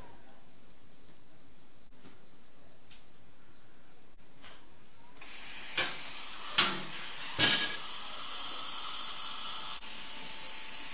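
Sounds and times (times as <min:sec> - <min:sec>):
dental equipment hissing: 0:05.2 - 0:10.9.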